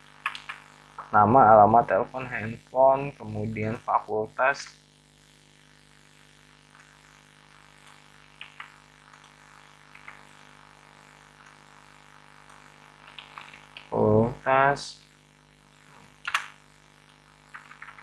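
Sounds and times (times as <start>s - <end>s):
electrical hum: 0.0s - 18.0s
keyboard and mouse clicks: 0.2s - 1.1s, 7.8s - 10.2s, 13.1s - 13.9s, 16.2s - 16.5s, 17.5s - 18.0s
man speaking: 1.0s - 4.7s, 13.9s - 15.0s.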